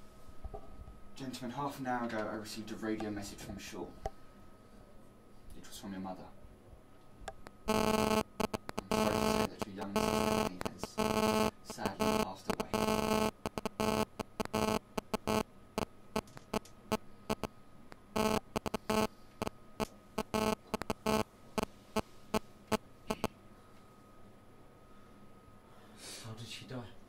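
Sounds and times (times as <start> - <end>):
faint steady hum: 0.0 - 27.0
stuttering electrical buzz: 7.7 - 15.4, 17.3 - 19.1, 20.2 - 21.2, 23.1 - 23.3.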